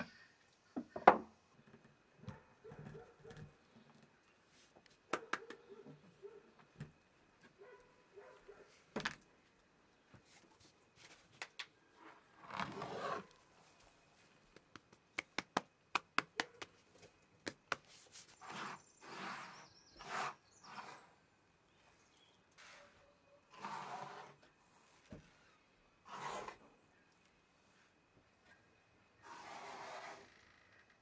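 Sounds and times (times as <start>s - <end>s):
sharp clicks and taps: 14.5s - 16.8s
rustling scrapes of rice grains: 18.0s - 21.2s, 29.2s - 30.3s.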